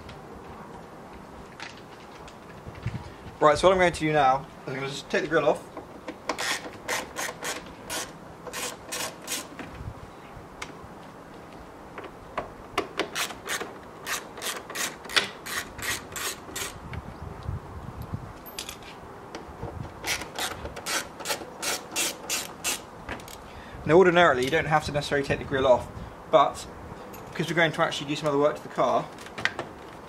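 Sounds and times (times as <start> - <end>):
ratchet screwdriver clicking: 6.4 - 9.5.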